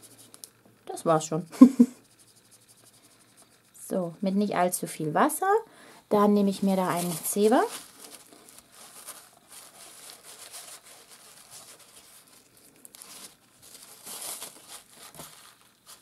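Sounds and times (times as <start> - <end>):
paper towel crinkling and rustling: 6.4 - 16.0.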